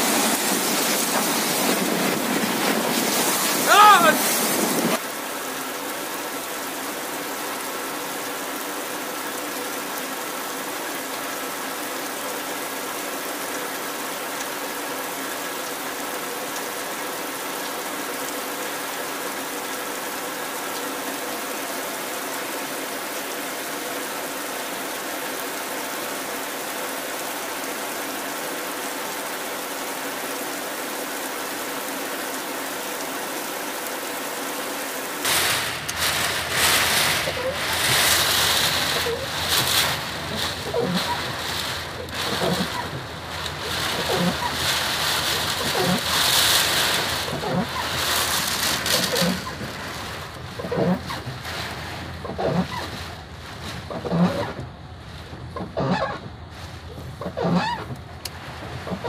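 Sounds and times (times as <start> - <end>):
rain and wind rushing: 0.0 - 59.0.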